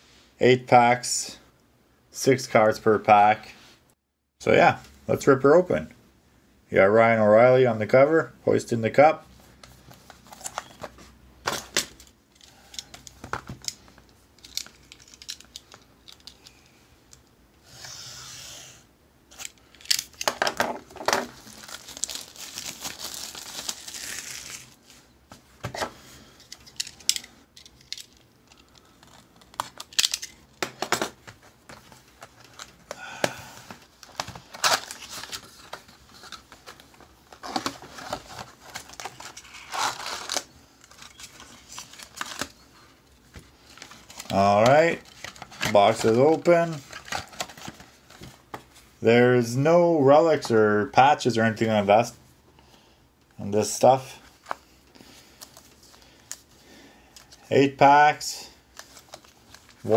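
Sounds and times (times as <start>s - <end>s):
packaging tearing and crinkling: 21.2s - 24.8s, 37.4s - 42.5s.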